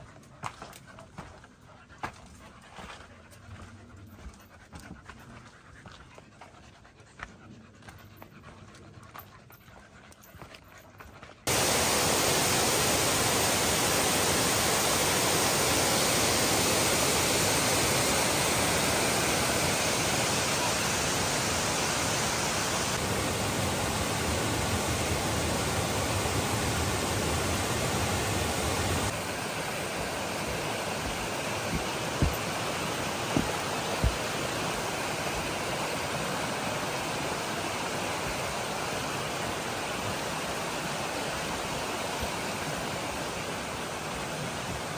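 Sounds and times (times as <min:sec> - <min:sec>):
waterfall rushing: 0:11.5 - 0:44.9.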